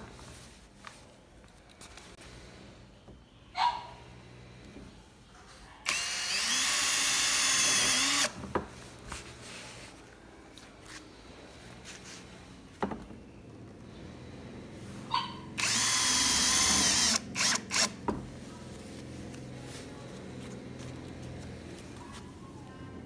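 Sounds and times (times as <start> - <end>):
drill trigger blips: 5.9 - 8.3, 15.6 - 18.0
drill driving screw into metal: 5.9 - 8.4, 15.6 - 18.0.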